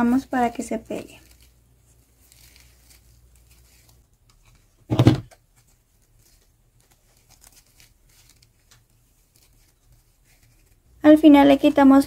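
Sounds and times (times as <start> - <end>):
ribbon rustling and crinkling: 0.0 - 12.0
short loud thump: 4.9 - 5.3.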